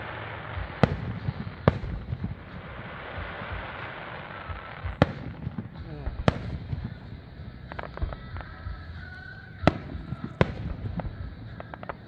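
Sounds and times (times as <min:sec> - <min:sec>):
firework crackles: 0:00.0 - 0:12.0
fireworks shells bursting: 0:00.0 - 0:12.0.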